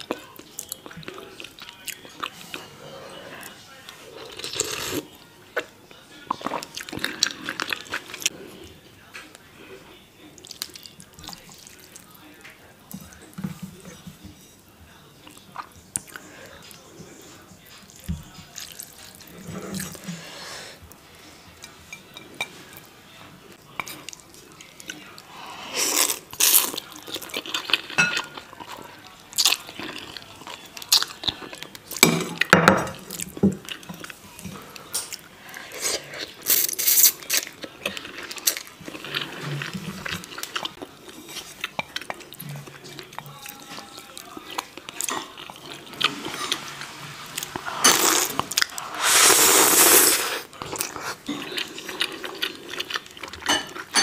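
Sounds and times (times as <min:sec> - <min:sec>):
chewing: 0:10.3 - 0:14.0, 0:15.2 - 0:20.3, 0:23.5 - 0:54.0
noodles slurped: 0:46.0 - 0:52.7.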